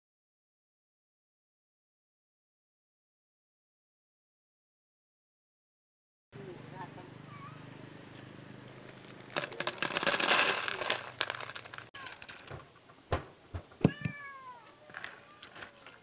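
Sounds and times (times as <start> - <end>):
cat meowing: 7.3 - 7.7, 13.8 - 15.9
kibble rattling into plastic container: 8.8 - 12.7.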